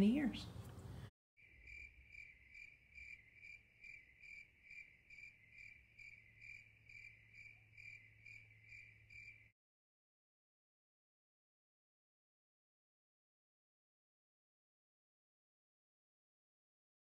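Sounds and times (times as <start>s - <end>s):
cricket chirping: 1.4s - 9.5s.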